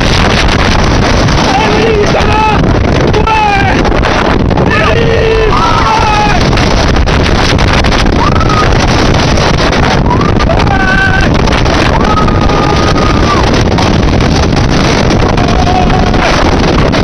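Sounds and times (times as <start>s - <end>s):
roller coaster train rumbling: 0.0s - 17.0s
wind rushing over microphone: 0.0s - 17.0s
riders screaming: 4.6s - 6.5s, 8.1s - 8.9s, 9.9s - 13.6s, 15.2s - 16.6s.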